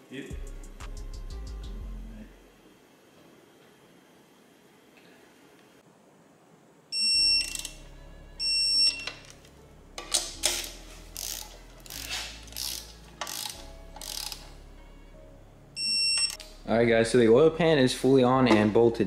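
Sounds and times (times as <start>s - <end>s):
torque wrench beeping: 7.0s - 7.8s, 8.4s - 9.2s, 10.5s - 14.4s, 15.8s - 16.4s
ratchet clicks: 10.4s - 14.5s.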